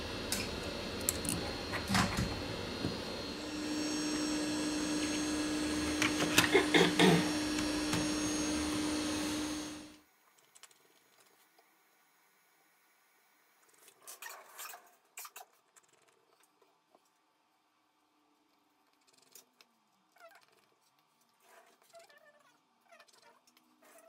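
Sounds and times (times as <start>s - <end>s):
machine hum: 0.0s - 10.0s.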